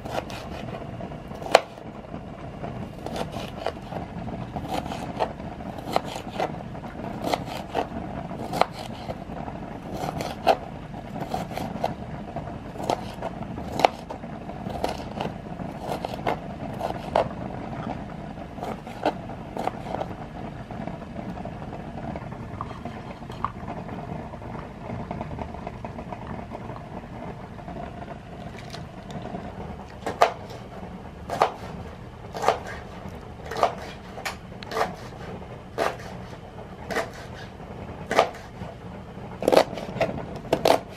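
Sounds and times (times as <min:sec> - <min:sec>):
knife chopping on plastic board: 0:00.0 - 0:00.7, 0:01.4 - 0:01.8, 0:03.0 - 0:03.9, 0:04.6 - 0:09.2, 0:09.9 - 0:10.6, 0:11.2 - 0:12.0, 0:12.7 - 0:17.9, 0:18.6 - 0:20.2, 0:30.0 - 0:30.6, 0:31.3 - 0:36.3, 0:36.9 - 0:37.5, 0:38.1 - 0:38.5, 0:39.4 - 0:40.9
steady low hum: 0:00.0 - 0:40.9.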